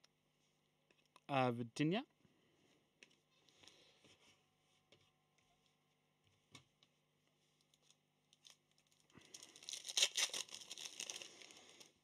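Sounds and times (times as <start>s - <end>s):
foil wrapper tearing and crinkling: 7.7s - 12.0s.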